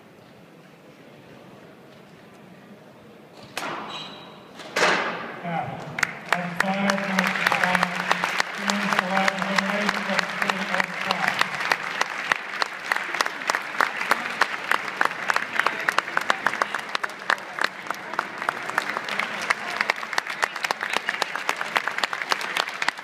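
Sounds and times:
crowd applauding: 5.8 - 23.0.

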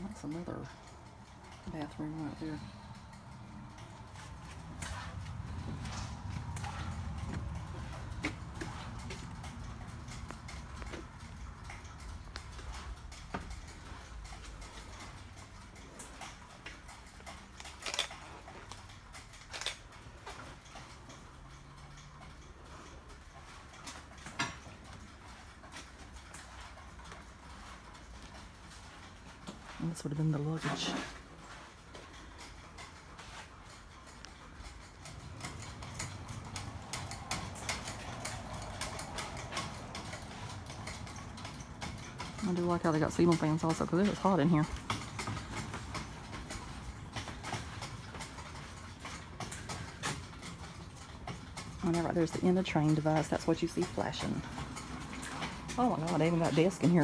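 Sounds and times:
footsteps in railroad car: 0.0 - 57.0
low steady hum: 0.0 - 57.0
low steady rumble: 0.0 - 57.0
small knocks and clicks: 31.2 - 57.0.

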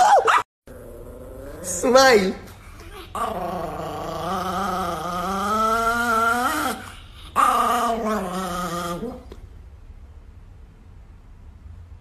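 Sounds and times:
small dog growling: 0.7 - 1.9, 2.5 - 9.4.

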